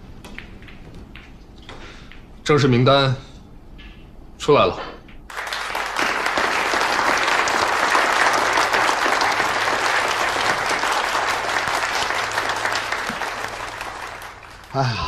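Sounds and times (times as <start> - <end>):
audience applauding: 5.3 - 15.0.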